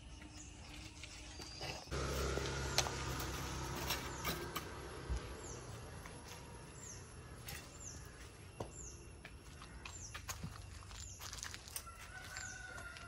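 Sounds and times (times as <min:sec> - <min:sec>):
low engine-like rumble: 0:01.9 - 0:08.4.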